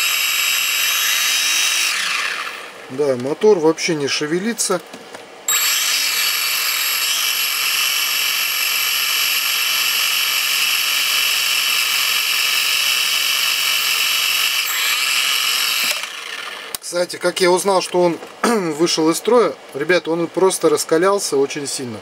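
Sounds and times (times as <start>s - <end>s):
toy quadcopter motors whining: 0.0s - 2.6s, 5.5s - 16.8s.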